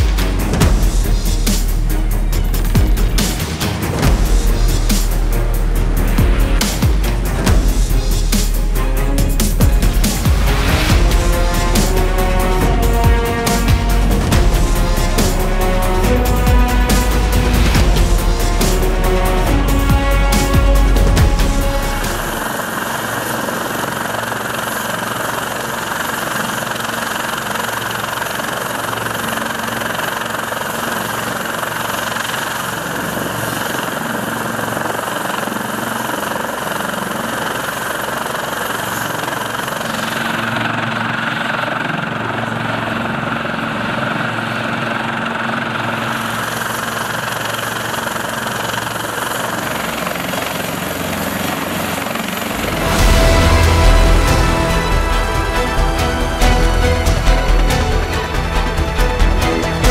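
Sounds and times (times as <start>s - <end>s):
helicopter rotor and turbine noise: 0.0s - 59.9s.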